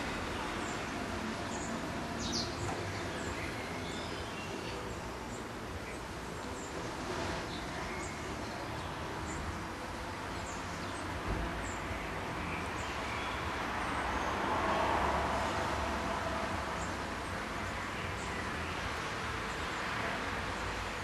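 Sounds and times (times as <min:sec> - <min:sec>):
steady background noise: 0:00.0 - 0:21.0
small birds chirping: 0:00.2 - 0:06.9.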